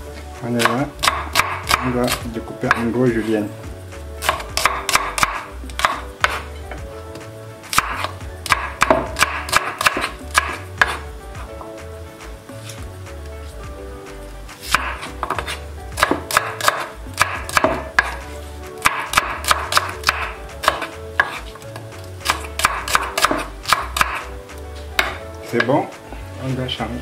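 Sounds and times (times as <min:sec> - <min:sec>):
knife chopping on wooden board: 0:00.6 - 0:03.3, 0:04.2 - 0:06.5, 0:07.7 - 0:11.1, 0:14.6 - 0:21.6, 0:22.2 - 0:24.3, 0:25.0 - 0:25.7.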